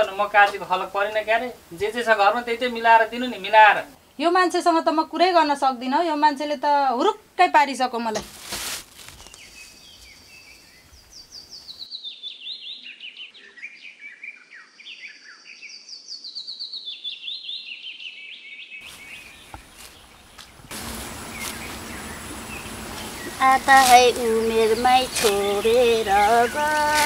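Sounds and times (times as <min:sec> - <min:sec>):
steady hissing noise: 0:00.0 - 0:11.9, 0:18.8 - 0:27.0
songbird chirping: 0:09.0 - 0:27.0.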